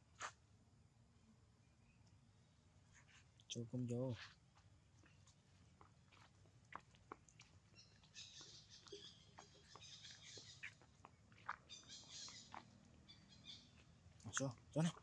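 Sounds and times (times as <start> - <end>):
high-pitched chirping calls: 7.7 - 13.8.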